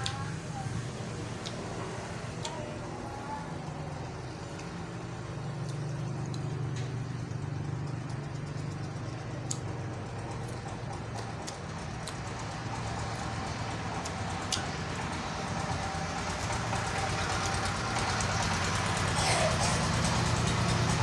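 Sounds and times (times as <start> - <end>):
person chewing food: 10.4 - 14.6.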